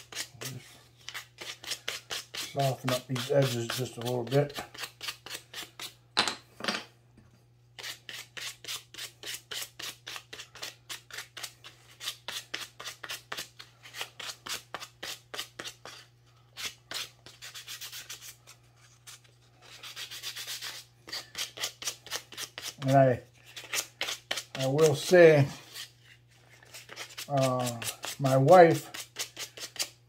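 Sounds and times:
sandpaper scratching on wood: 0:00.0 - 0:05.7, 0:16.6 - 0:18.4, 0:19.7 - 0:23.0, 0:26.7 - 0:30.0.

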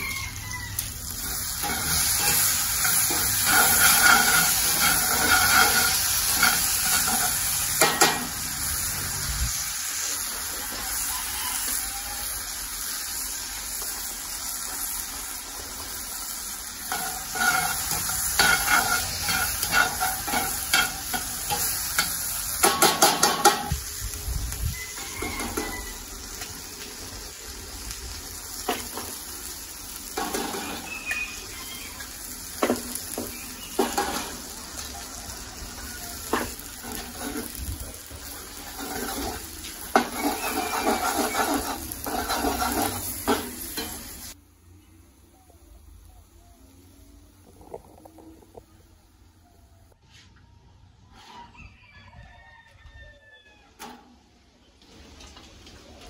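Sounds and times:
vegetables sizzling in skillet: 0:00.0 - 0:49.8
metal tongs scraping pan: 0:00.8 - 0:08.4, 0:16.8 - 0:23.8, 0:25.0 - 0:26.0, 0:30.0 - 0:44.3.

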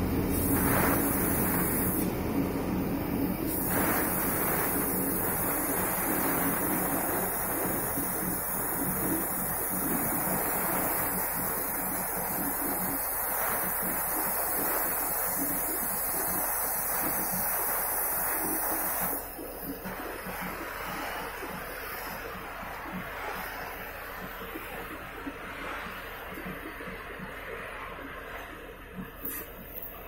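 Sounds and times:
cutting torch hissing: 0:00.0 - 0:30.0.

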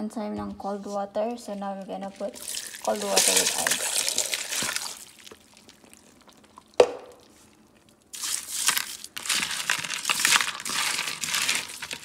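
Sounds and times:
crushed ice crunching and rattling: 0:02.0 - 0:06.2, 0:08.1 - 0:12.0
sharp knock: 0:06.8 - 0:07.2.

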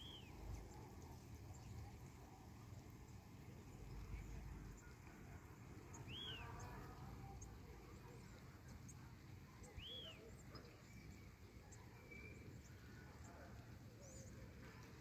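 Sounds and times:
bird calling: 0:06.1 - 0:06.7.

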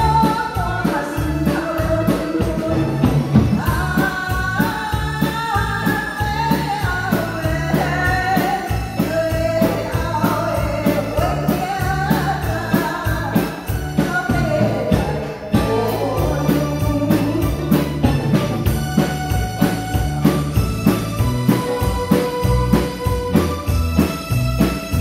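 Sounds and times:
woman singing: 0:00.0 - 0:18.1
drum kit beat: 0:00.0 - 0:25.0
electric bass: 0:00.0 - 0:25.0
keyboard: 0:00.0 - 0:25.0.

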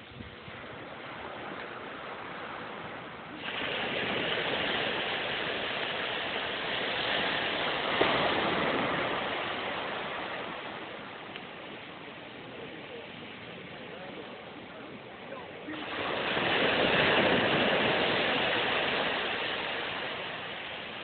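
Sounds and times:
waves washing onto beach: 0:00.0 - 0:21.0.

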